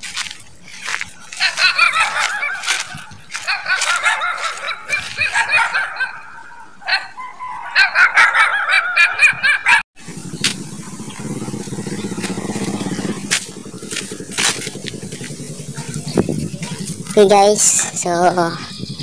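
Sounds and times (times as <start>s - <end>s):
high wavering animal cries: 1.4s - 9.8s, 18.3s - 19.0s
steady low rumble: 10.0s - 19.0s.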